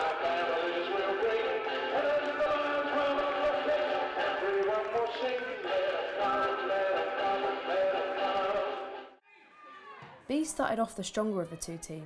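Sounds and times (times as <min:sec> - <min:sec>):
background music: 0:00.0 - 0:09.2.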